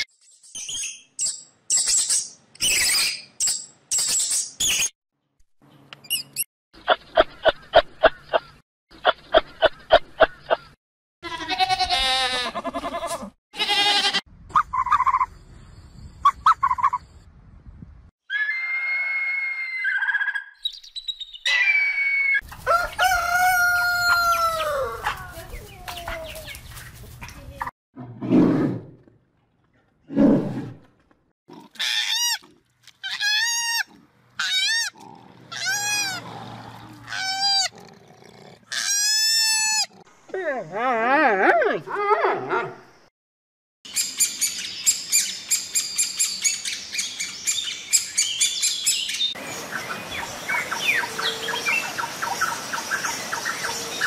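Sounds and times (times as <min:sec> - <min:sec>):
rooster crowing: 0:22.6 - 0:25.2
animal calls: 0:33.0 - 0:37.8.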